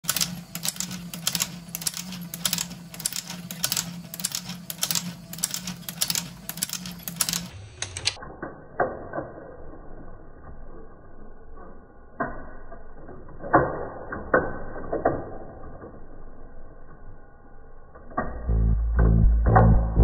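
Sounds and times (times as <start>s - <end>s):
motor hum: 18.4s - 20.0s.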